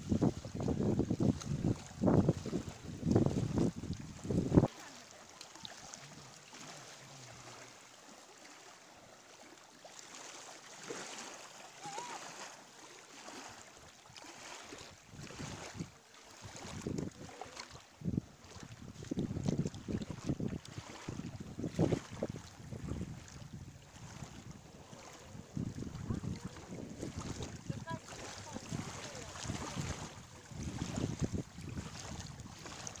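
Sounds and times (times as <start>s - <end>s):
wind buffeting microphone: 0.0s - 4.7s, 15.1s - 17.3s, 18.0s - 33.0s
small waves lapping: 0.0s - 33.0s.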